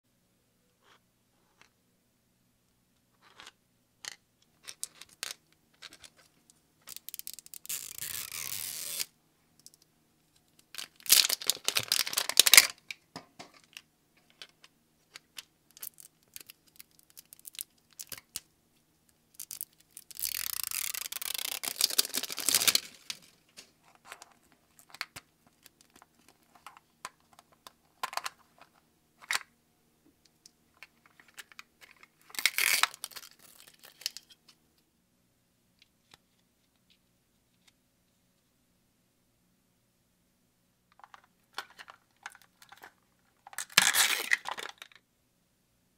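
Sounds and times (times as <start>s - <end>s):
plastic wrapping crinkling: 10.7s - 13.0s, 19.4s - 26.7s, 41.1s - 45.0s.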